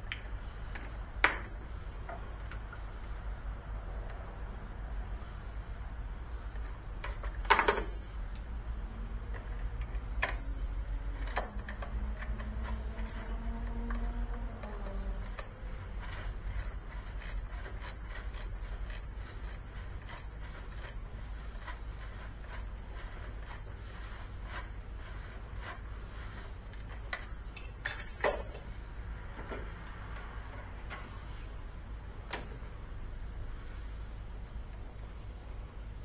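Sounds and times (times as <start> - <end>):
steady low hum: 0.0 - 36.0
small metallic clicks: 9.3 - 15.5
metal clatter: 26.7 - 28.7.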